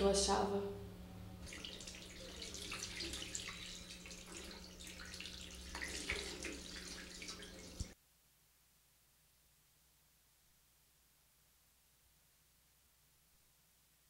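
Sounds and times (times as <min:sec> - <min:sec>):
tap water splashing on hands: 0:01.5 - 0:08.0.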